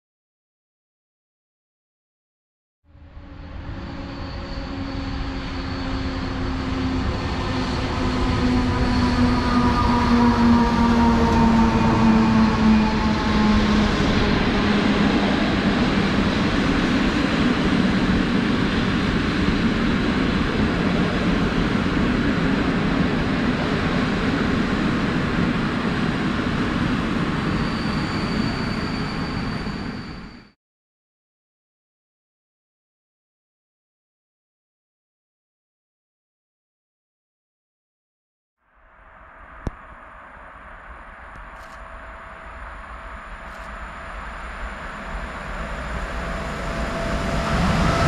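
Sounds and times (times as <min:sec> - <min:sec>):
locomotive humming tones: 0:03.0 - 0:30.5
train wheels on rails: 0:03.8 - 0:30.4.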